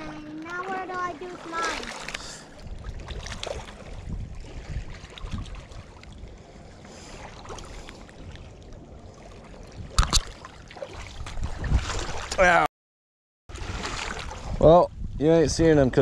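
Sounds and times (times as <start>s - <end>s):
waves lapping on rocky shore: 0.0s - 8.2s
wind rumbling on microphone: 0.0s - 12.6s, 13.5s - 16.0s.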